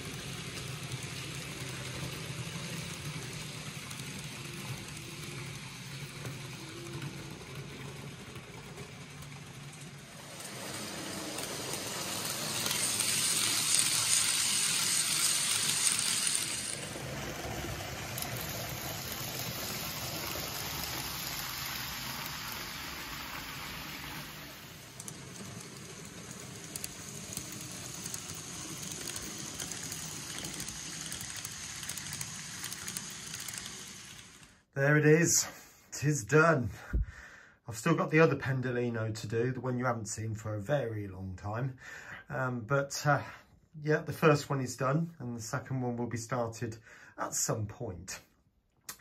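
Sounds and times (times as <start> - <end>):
wheels hissing on rail: 0.0 - 34.7
model train hum: 0.0 - 34.8.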